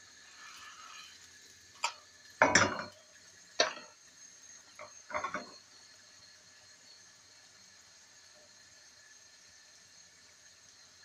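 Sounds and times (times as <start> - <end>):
frying pan knocking on hob grate: 1.8 - 3.0, 3.6 - 4.0, 4.8 - 5.6.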